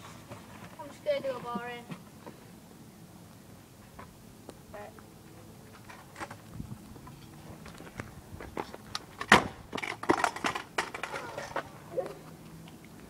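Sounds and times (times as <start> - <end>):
scooter clattering on paving: 0.0 - 2.4, 5.7 - 12.3.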